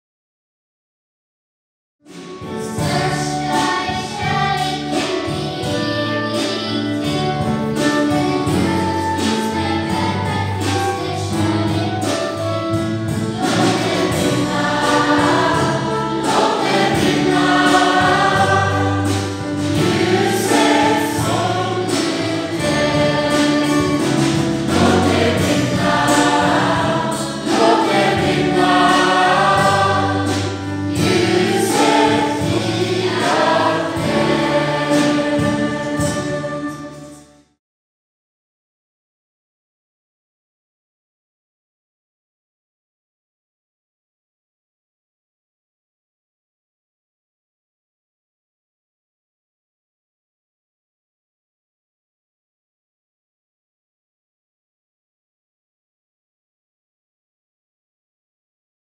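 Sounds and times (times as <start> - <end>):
mixed choir singing a hymn: 2.1 - 37.2.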